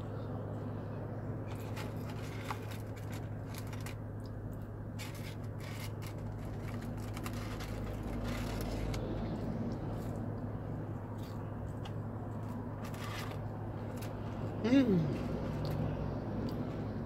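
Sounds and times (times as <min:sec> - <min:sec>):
chewing and food handling clicks: 0:15.6 - 0:16.8.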